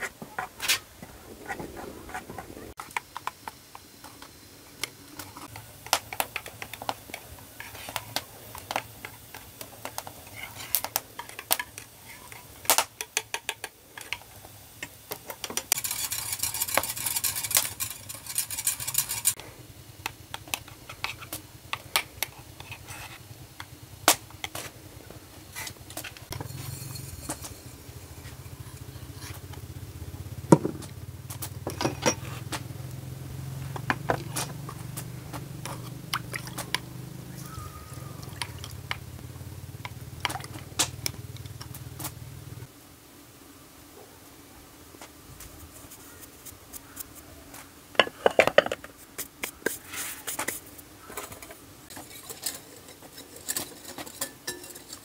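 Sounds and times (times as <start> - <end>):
steady low hum: 15.6 - 43.8
dishes and utensils clinking: 26.3 - 29.4, 31.7 - 32.3, 48.0 - 48.9, 51.9 - 55.0.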